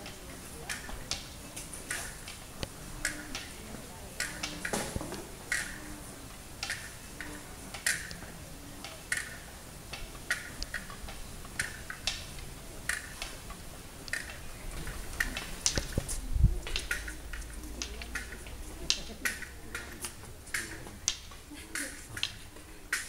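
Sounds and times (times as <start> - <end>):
low steady background: 0.0 - 23.0
footsteps on stone paving: 12.9 - 19.2.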